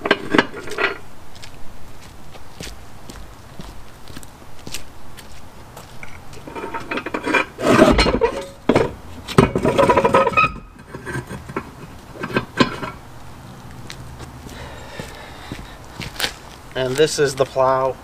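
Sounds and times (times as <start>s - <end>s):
metal clanking and scraping: 0.0s - 1.0s, 6.0s - 13.1s
footsteps on pavement: 1.0s - 6.9s, 13.2s - 17.9s.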